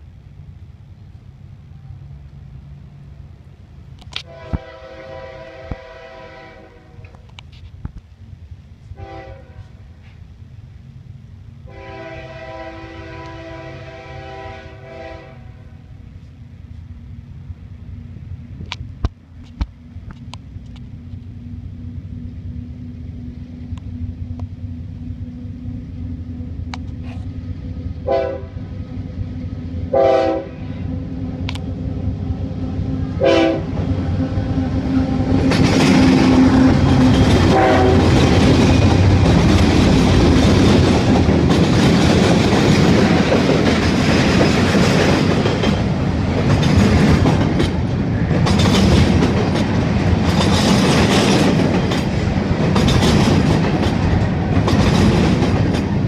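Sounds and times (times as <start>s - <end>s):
locomotive rumble: 0.0s - 56.0s
locomotive horn blasts: 4.2s - 7.2s, 8.9s - 9.8s, 11.6s - 15.8s, 28.0s - 28.6s, 29.9s - 30.9s, 33.1s - 34.2s, 37.4s - 38.4s.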